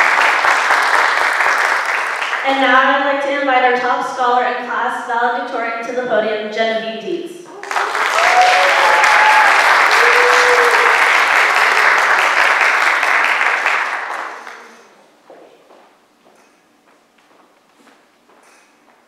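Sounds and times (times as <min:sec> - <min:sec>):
audience applauding: 0:00.0 - 0:02.4, 0:07.5 - 0:15.0.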